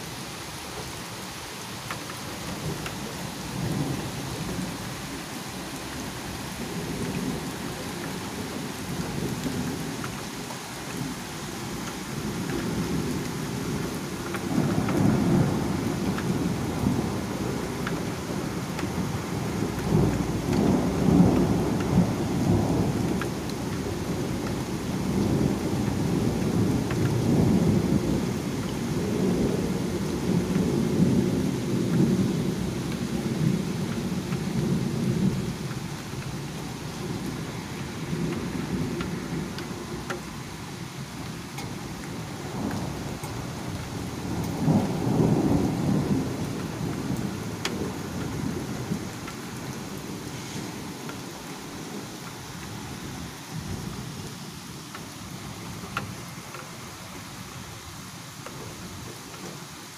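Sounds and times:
steady rain: 0:00.0 - 0:59.9
thunder rumbling: 0:12.2 - 0:40.3, 0:41.6 - 0:54.2.

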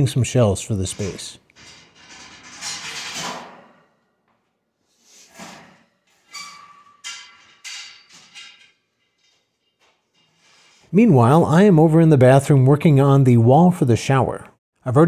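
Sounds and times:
metal shelving clattering: 0:00.0 - 0:04.2, 0:05.2 - 0:10.9.

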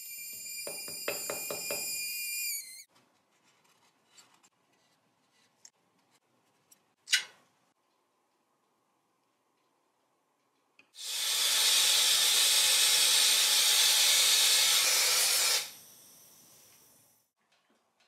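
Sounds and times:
gas torch flame whistling: 0:00.0 - 0:02.9, 0:11.0 - 0:16.8.

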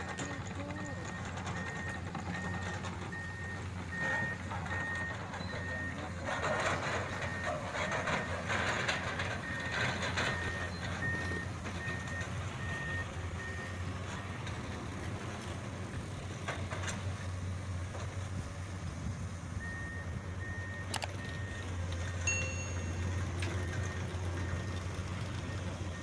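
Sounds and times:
heavy machinery diesel hum: 0:00.0 - 0:26.0
backup alarm beeping: 0:09.4 - 0:14.4, 0:19.6 - 0:26.0.

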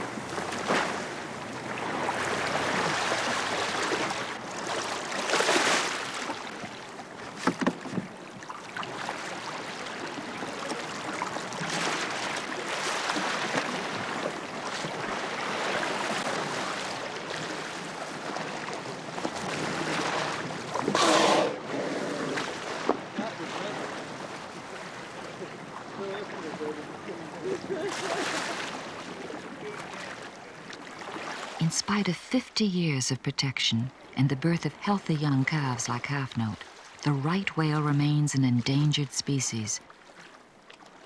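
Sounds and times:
water washing along hull: 0:00.0 - 0:32.1, 0:33.8 - 0:41.0
sea water splashing: 0:00.0 - 0:41.0.

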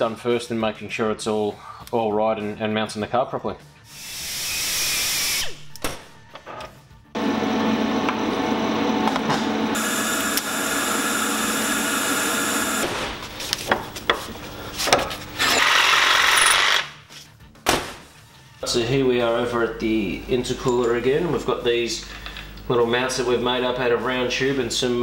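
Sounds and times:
grinder whirring on metal: 0:07.2 - 0:12.9, 0:15.2 - 0:16.9
power saw cutting bolt: 0:09.0 - 0:12.9, 0:15.4 - 0:16.9.

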